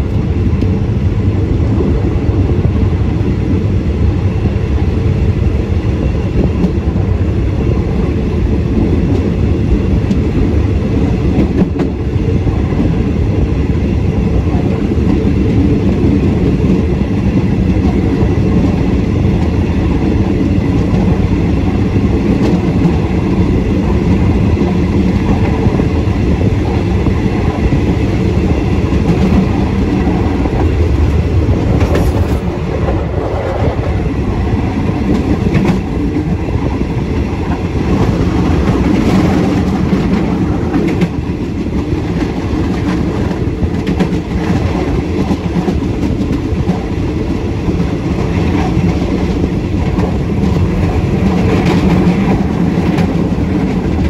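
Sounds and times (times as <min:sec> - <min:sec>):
clickety-clack over rail joints: 0:00.0 - 0:00.9, 0:05.9 - 0:54.0
train wheels rumbling: 0:00.0 - 0:54.0.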